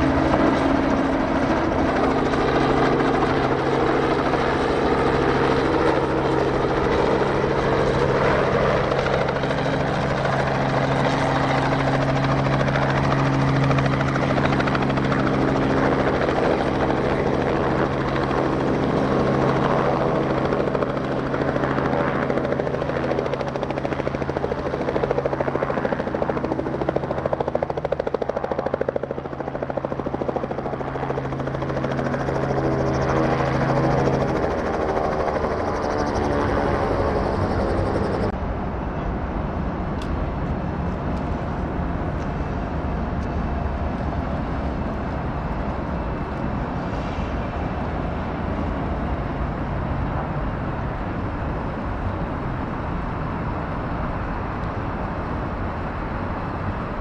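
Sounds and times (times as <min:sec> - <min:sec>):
helicopter rotor and engine: 0:00.0 - 0:57.0.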